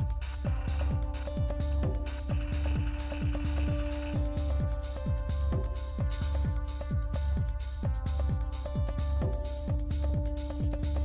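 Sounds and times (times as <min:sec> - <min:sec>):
kick drum beat: 0:00.0 - 0:11.0.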